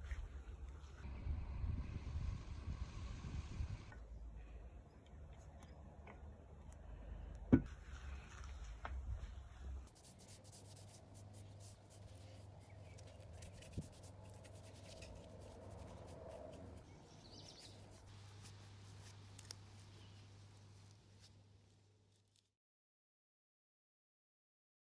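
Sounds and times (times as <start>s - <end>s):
low steady hum: 0.0s - 22.4s
sponge rubbing on wood: 9.8s - 21.3s.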